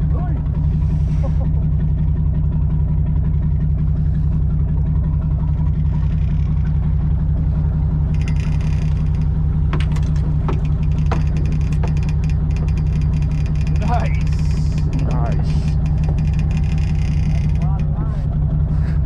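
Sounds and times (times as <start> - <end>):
boat engine droning: 0.0 - 19.0
sharp clicks and knocks: 8.1 - 18.0.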